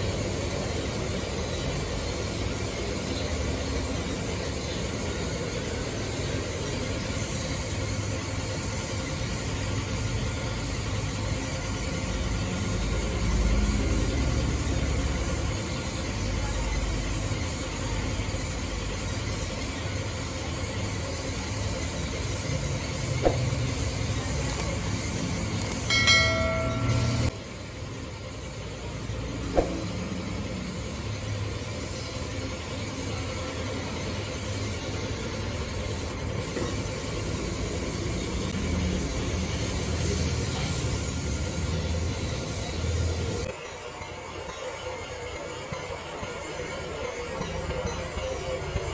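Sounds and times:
spray gun hissing: 0.0 - 43.5
loud pitched tone: 25.9 - 27.3.

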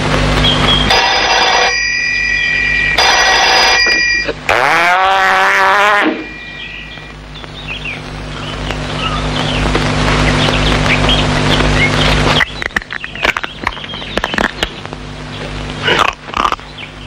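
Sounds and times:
drawn-out wavering pitched sound: 0.4 - 9.3
desk telephone ringing: 0.9 - 4.4.

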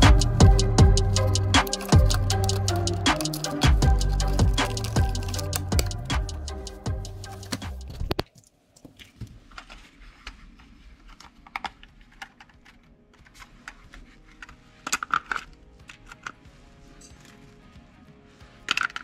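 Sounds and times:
small plastic parts clicking: 1.2 - 6.4, 11.1 - 16.4, 18.7 - 19.0.

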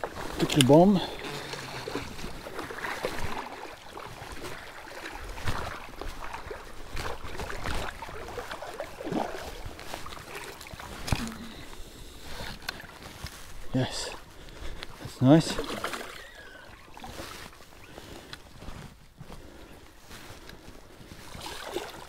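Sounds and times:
water splashing: 0.0 - 13.1, 15.2 - 17.6, 21.3 - 22.0.

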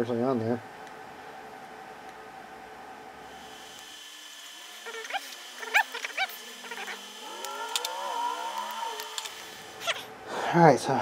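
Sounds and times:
cat chirping: 4.8 - 7.0, 9.8 - 10.1.

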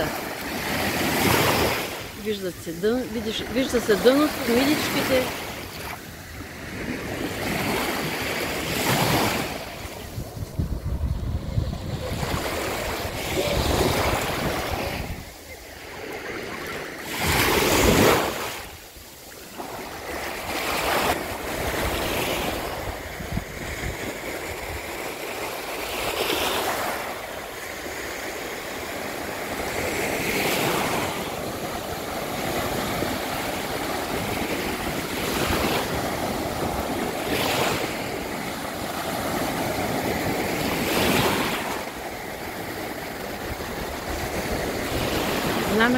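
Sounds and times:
sea waves breaking on shore: 0.0 - 45.9.

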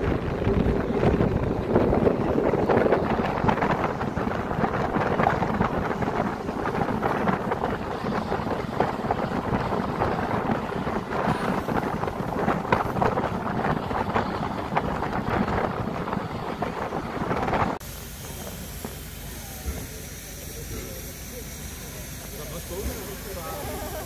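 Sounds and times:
wind buffeting microphone: 0.0 - 19.0
moving vehicle rumble: 0.0 - 24.0.

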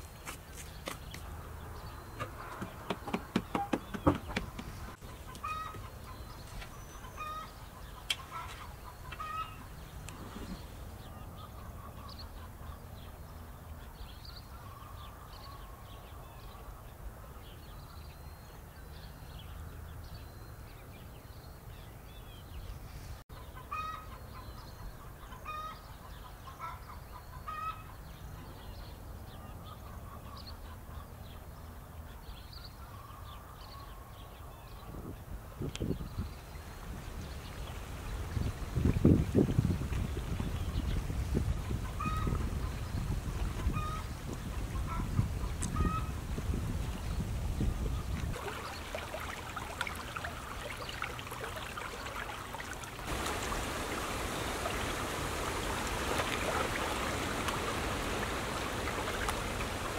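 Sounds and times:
chickens clucking: 2.2 - 10.6, 41.6 - 42.8, 43.5 - 46.2.

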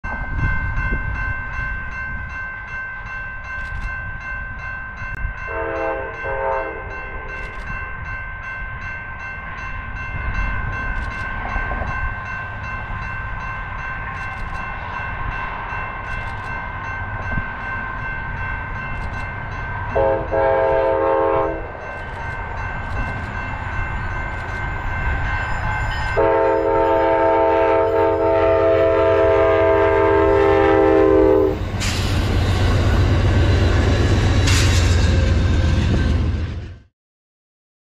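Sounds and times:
train air horn blowing: 5.5 - 7.3, 19.9 - 21.8, 26.2 - 32.0.

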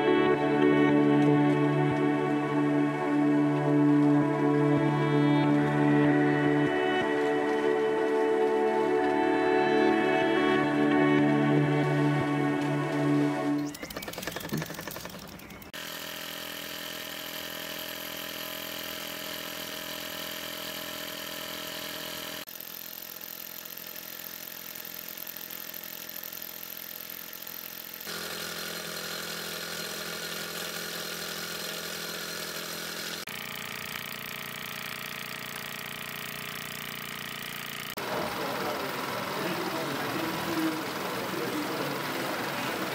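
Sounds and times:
model steam engine running: 13.8 - 42.9.

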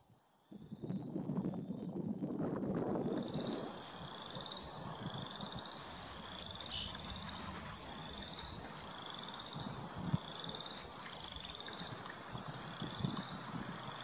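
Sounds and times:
frogs trilling: 3.1 - 14.0
faint chirps: 3.2 - 14.0.

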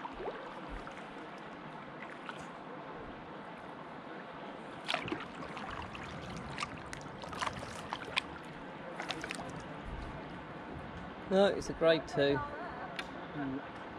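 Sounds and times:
paddle splashing and dripping: 0.0 - 2.6, 4.8 - 10.1
moving water: 0.0 - 13.9
sharp splashes and knocks: 4.8 - 8.4, 9.0 - 9.6.

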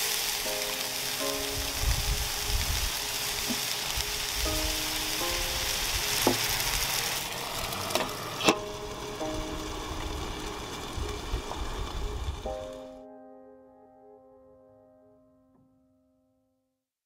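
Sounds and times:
dumplings sizzling in frying pan: 0.0 - 12.6.

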